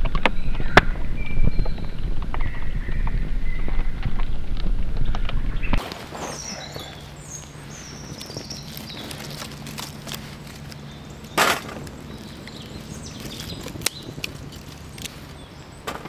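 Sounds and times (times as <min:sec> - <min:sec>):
twig fire crackling: 0:00.0 - 0:16.0
sticks snapping: 0:07.3 - 0:16.0.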